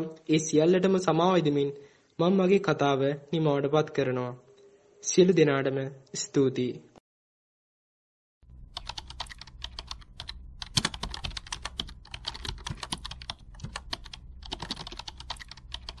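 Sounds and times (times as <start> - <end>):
steady low hum: 8.4 - 16.0
keyboard typing clicks: 8.7 - 16.0.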